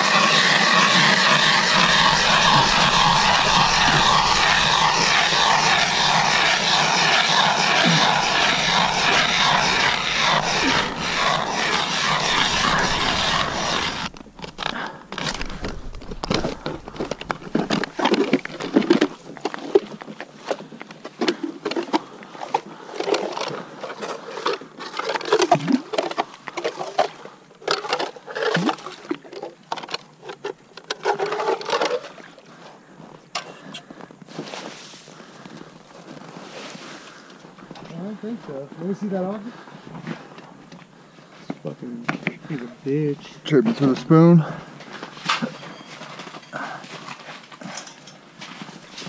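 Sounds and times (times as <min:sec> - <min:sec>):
ice auger grinding: 0:00.0 - 0:19.7, 0:27.6 - 0:32.2
blade scraping and crunching ice: 0:00.0 - 0:19.9, 0:21.2 - 0:26.8, 0:27.7 - 0:32.1.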